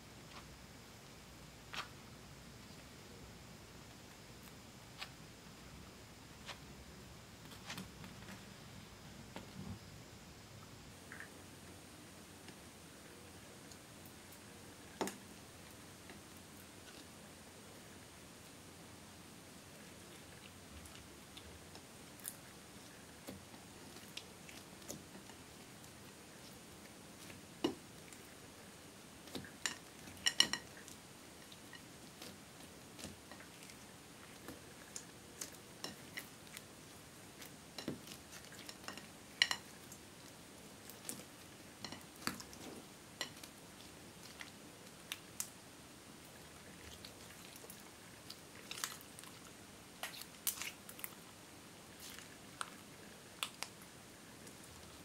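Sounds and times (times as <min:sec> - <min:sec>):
sticky slime squishes: 0:19.8 - 0:45.6, 0:46.2 - 0:53.8.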